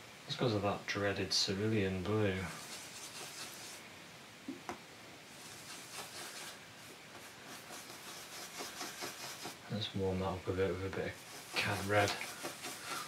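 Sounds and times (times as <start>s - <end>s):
brush scrubbing on palette: 2.0s - 3.8s, 5.3s - 9.6s, 10.4s - 13.0s.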